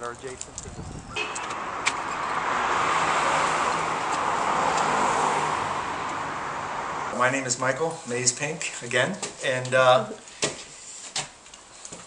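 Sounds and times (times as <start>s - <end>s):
car passing: 1.1s - 8.0s.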